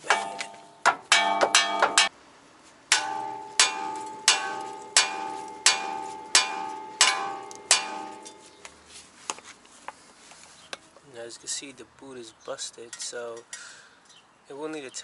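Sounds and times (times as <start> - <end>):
sledgehammer striking steel: 0.0 - 2.2, 2.9 - 8.6.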